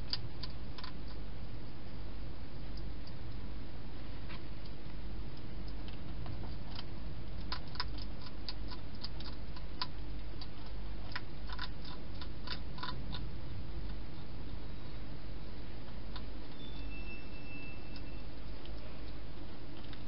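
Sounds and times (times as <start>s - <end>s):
hedgehog chewing clicks: 0.0s - 1.2s, 4.6s - 14.0s
steady low hum and hiss: 0.0s - 20.0s.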